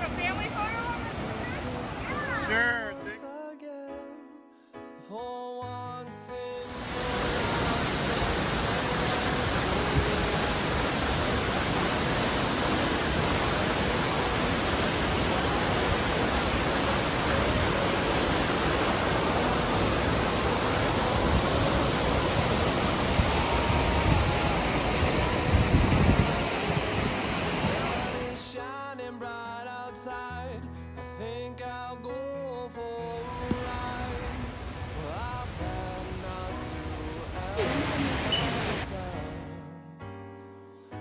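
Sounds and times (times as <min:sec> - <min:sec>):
waterfall and creek rushing: 0:00.0 - 0:03.2, 0:06.6 - 0:28.5, 0:33.1 - 0:39.3.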